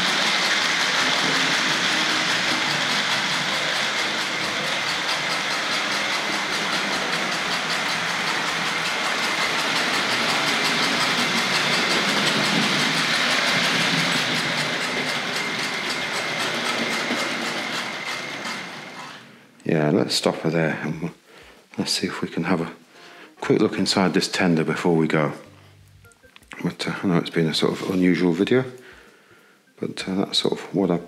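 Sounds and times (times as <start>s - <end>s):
wheels clicking on rail joints: 0.0s - 19.2s
electric motor whine: 0.0s - 19.3s
model train chuffing: 0.0s - 19.3s.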